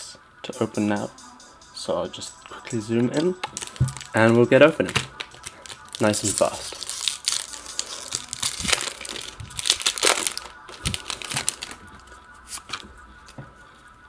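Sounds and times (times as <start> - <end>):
foil wrapper crinkling: 3.4 - 13.4.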